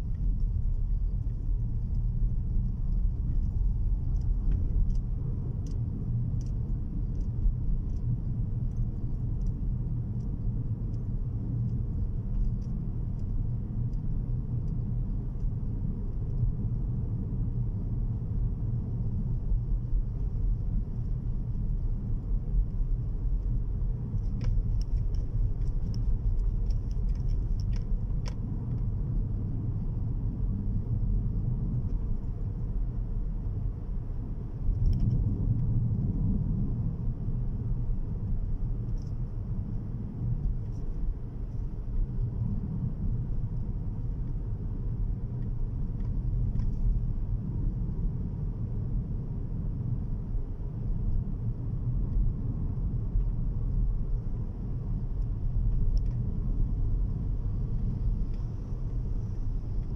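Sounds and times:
faint light ticks: 0.0 - 15.6, 20.4 - 28.9, 34.6 - 36.3, 38.2 - 42.8, 45.4 - 47.0, 54.8 - 59.9
car road and engine rumble: 0.0 - 59.9.

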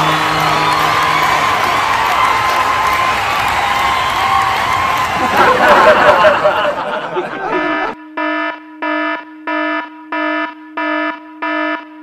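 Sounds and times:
loud shouting: 0.0 - 8.0
buzzy electronic alarm beep: 7.4 - 12.0.

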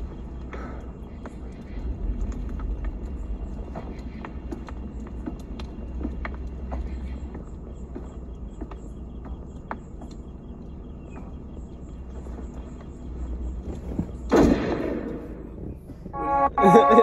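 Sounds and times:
faint scattered clicks: 0.0 - 13.5
low steady rumble: 0.0 - 17.0.

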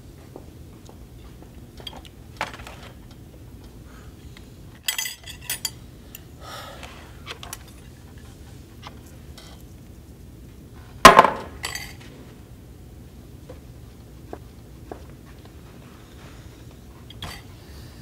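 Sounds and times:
low room hum: 0.0 - 18.0
dishes and cutlery clattering: 4.8 - 5.8, 11.6 - 12.0, 17.1 - 17.5.

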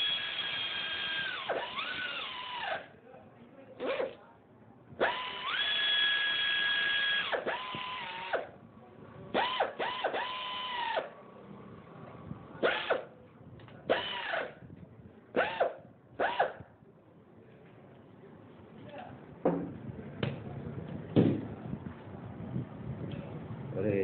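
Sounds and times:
electric driver motor whine: 0.0 - 2.9, 5.0 - 8.6, 9.4 - 11.2, 13.9 - 14.6.

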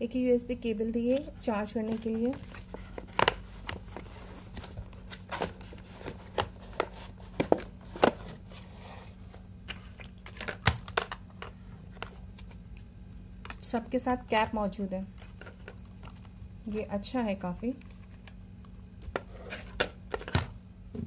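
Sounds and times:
faint low hum: 0.0 - 21.0
packaging rustling and crinkling: 1.2 - 12.6, 15.1 - 16.5.

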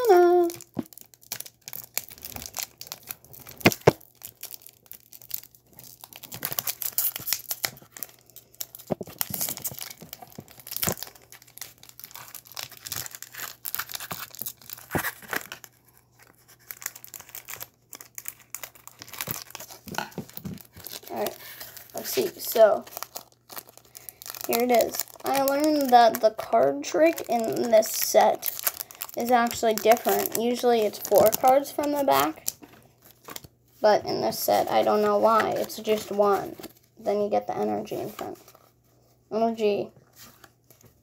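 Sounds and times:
foil pack crinkling: 0.0 - 38.8.

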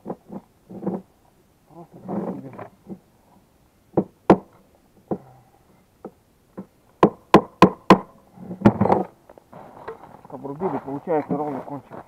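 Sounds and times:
axe chopping: 7.0 - 8.1.

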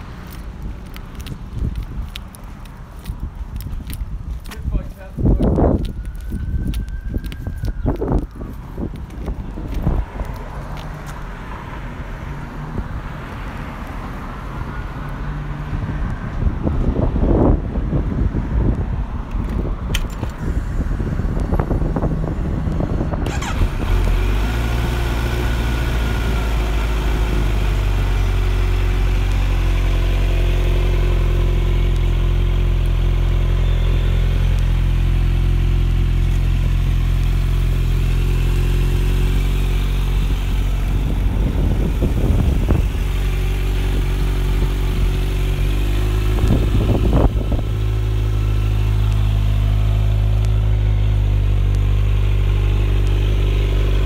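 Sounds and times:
motorcycle engine revving: 20.1 - 54.0.

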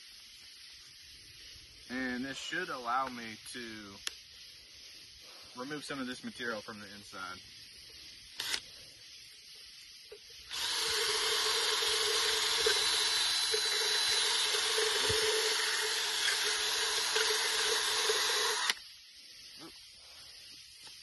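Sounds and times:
wire brush scratchy hiss: 0.0 - 11.0, 12.6 - 21.0
power drill whirring: 8.4 - 8.6, 10.5 - 18.8.

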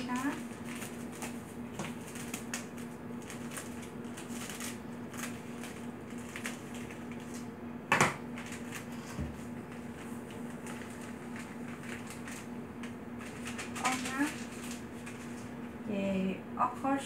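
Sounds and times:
steady low hum: 0.0 - 17.0
kitchen items clattering: 13.2 - 15.4
kitchen items clicking and rustling: 13.2 - 15.5.

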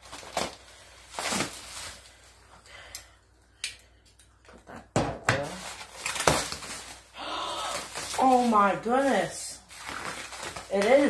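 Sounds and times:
bubble wrap rustling and crinkling: 0.0 - 2.7, 5.4 - 11.0.

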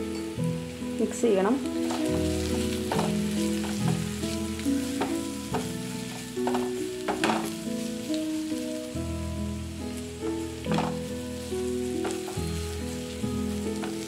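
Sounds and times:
vegetables sizzling in oil: 0.0 - 14.0
wooden spatula scraping pan: 1.8 - 8.1, 10.7 - 14.0.

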